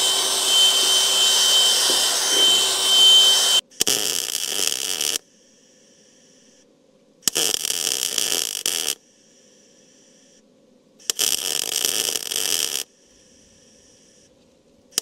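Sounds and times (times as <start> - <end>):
faint steady hum: 0.0 - 3.6
welder arc crackling: 0.0 - 5.1.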